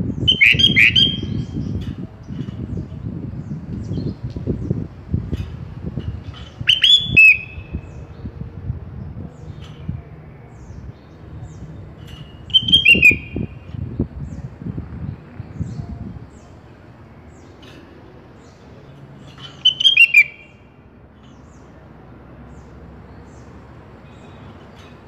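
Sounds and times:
bird whistled calls: 0:00.2 - 0:01.7, 0:06.6 - 0:08.0, 0:12.4 - 0:13.7, 0:19.4 - 0:20.7.

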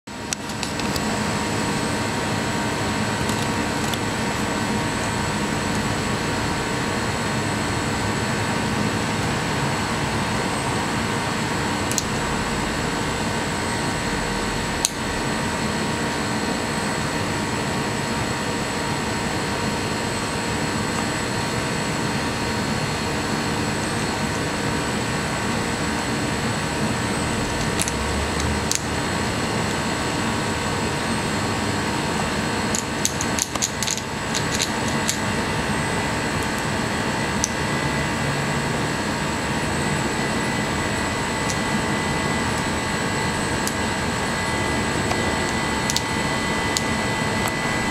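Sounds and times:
machine-like hum and hiss: 0:00.1 - 0:47.9
squirrel gnawing nut shell: 0:27.5 - 0:28.9, 0:32.7 - 0:35.4.

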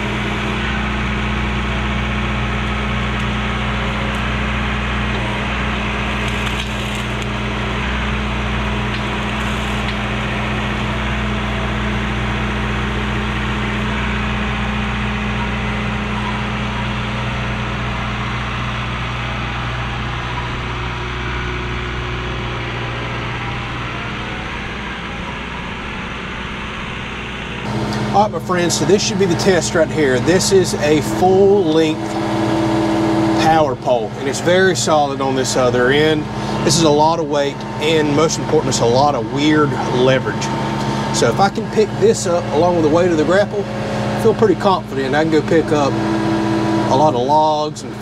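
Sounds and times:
tractor diesel engine running: 0:00.0 - 0:48.0
branches snapping: 0:06.1 - 0:07.3.

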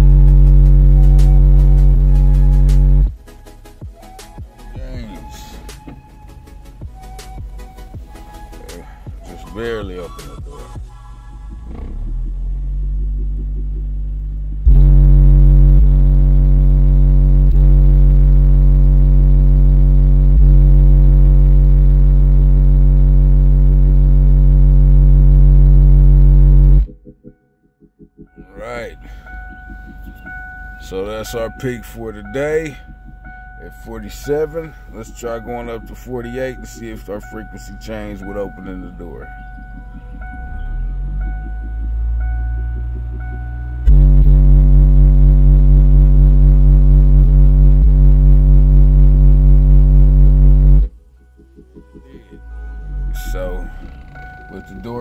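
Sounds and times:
subwoofer test tone: 0:00.0 - 0:08.3, 0:11.5 - 0:55.0.

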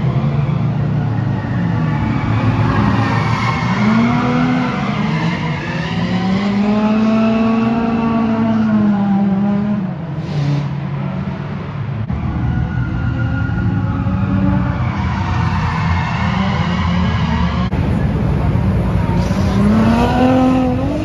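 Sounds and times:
car engines revving hard: 0:00.0 - 0:21.0.

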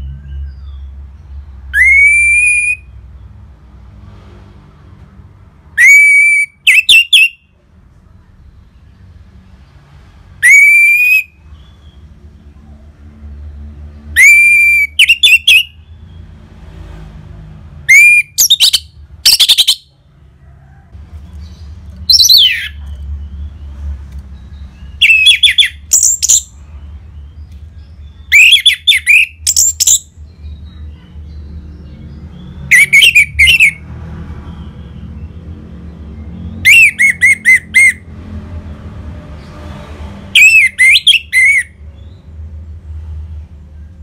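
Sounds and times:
thrush singing whistles: 0:01.7 - 0:03.0, 0:05.8 - 0:07.4, 0:10.4 - 0:11.8, 0:14.2 - 0:15.8, 0:17.9 - 0:19.9, 0:25.0 - 0:26.5, 0:28.3 - 0:30.1, 0:32.7 - 0:33.8, 0:36.6 - 0:38.0, 0:40.4 - 0:41.8.

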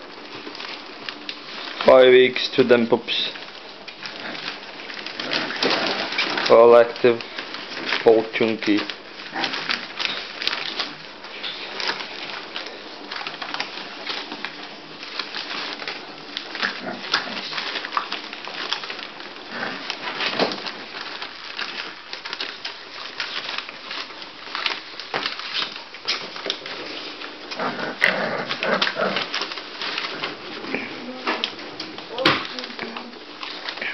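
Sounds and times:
puppy paws rustling newspaper: 0:00.0 - 0:33.9
puppies whimpering and squeaking: 0:04.2 - 0:06.5.

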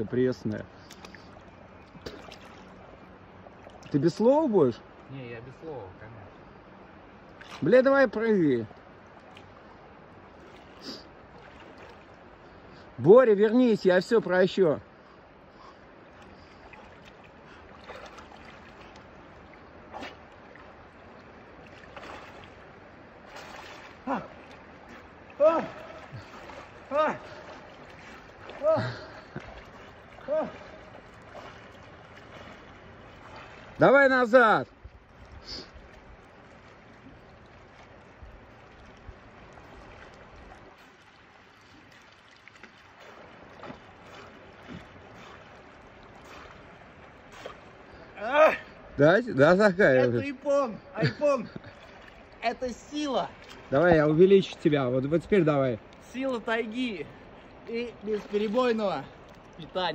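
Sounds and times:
river water lapping: 0:00.0 - 0:59.9
swimmer splashing: 0:00.7 - 0:05.0, 0:07.1 - 0:59.9
river rushing: 0:15.8 - 0:34.6.

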